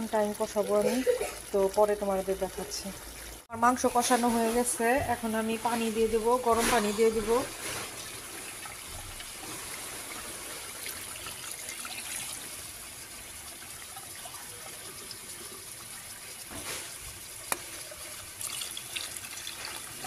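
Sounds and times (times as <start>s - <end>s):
hot water pouring and splashing: 0.0s - 20.0s.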